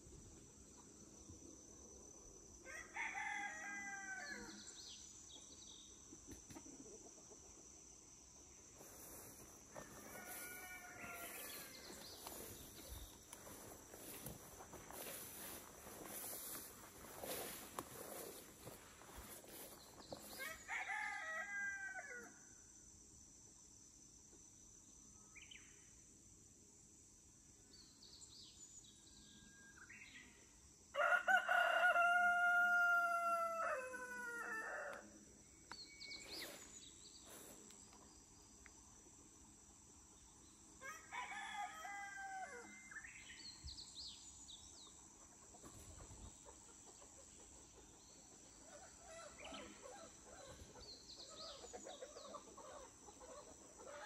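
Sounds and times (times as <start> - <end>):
rooster crowing: 2.6 - 4.6, 9.7 - 11.9, 20.4 - 22.4, 31.0 - 35.1, 40.8 - 43.0.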